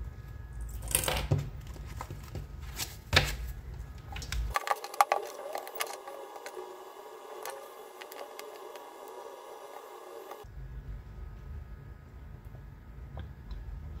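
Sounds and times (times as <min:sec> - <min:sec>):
paper sheet rustling: 0:01.6 - 0:03.6, 0:04.4 - 0:10.4.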